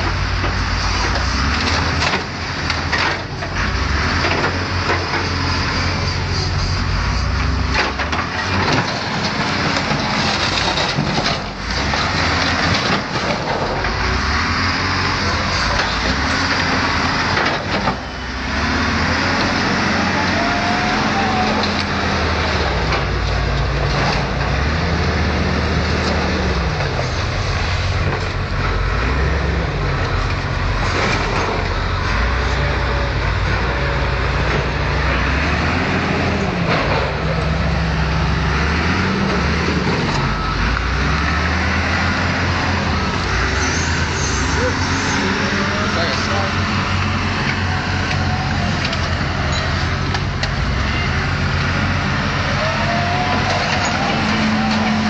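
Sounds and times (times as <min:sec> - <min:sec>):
diesel engine revving: 0:00.0 - 0:55.0.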